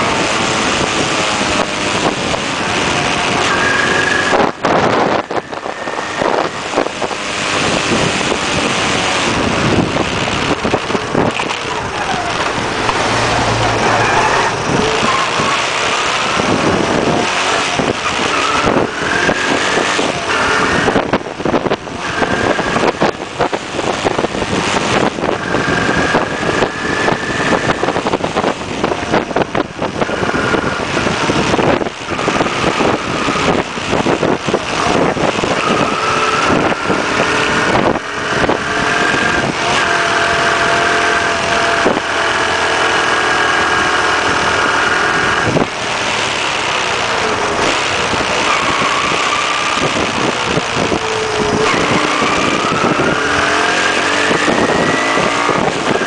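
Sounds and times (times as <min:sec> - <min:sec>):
wind buffeting microphone: 0:00.0 - 0:56.0
motorbike engine running: 0:14.5 - 0:56.0.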